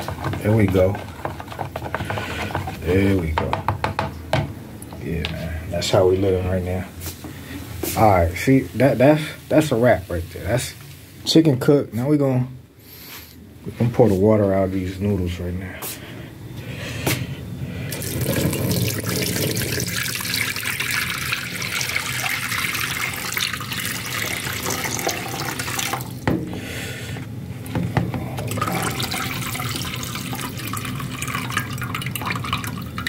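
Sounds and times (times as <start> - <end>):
knocks: 3.3 - 4.6
water splashing into steel sink: 17.9 - 26.2, 28.5 - 33.0.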